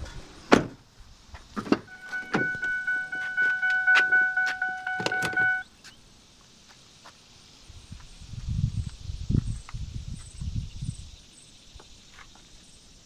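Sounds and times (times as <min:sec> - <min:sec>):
vehicle warning chime: 0:01.9 - 0:05.7.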